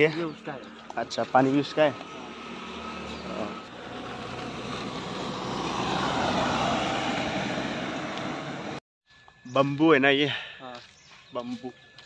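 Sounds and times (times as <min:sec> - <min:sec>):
vehicle passing on road: 0:00.0 - 0:08.8.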